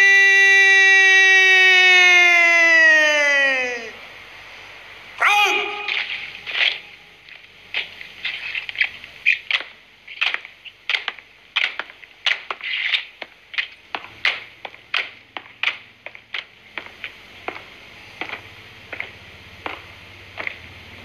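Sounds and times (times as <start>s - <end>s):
boots stamping in unison: 5.9s - 21.0s
hands slapping rifles: 7.7s - 17.6s.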